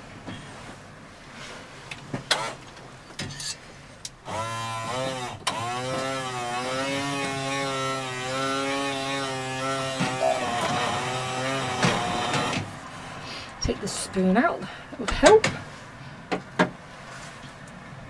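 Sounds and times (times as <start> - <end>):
hand blender motor: 4.3 - 12.6.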